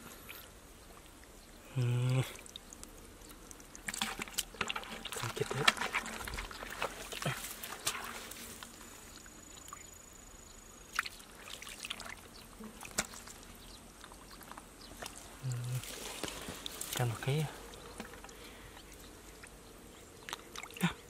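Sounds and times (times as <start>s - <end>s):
hands splashing in muddy water: 3.8s - 8.6s.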